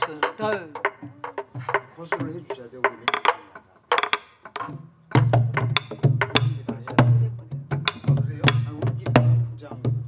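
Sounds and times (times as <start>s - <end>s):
sticks striking drum shells: 0.0s - 6.9s
palm beats on drumheads: 0.0s - 10.0s.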